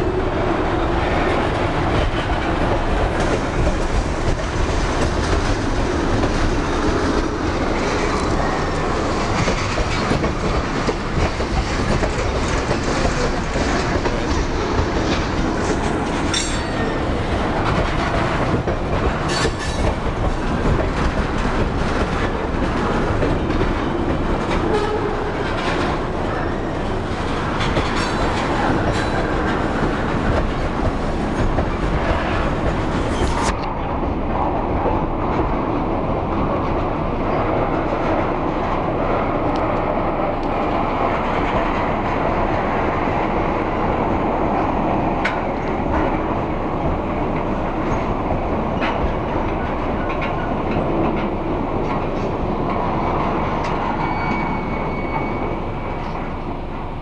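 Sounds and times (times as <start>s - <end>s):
wheels clacking over rail joints: 0.0s - 55.4s
freight train rumbling past: 0.0s - 57.0s
sharp metal clanks: 16.3s - 17.0s.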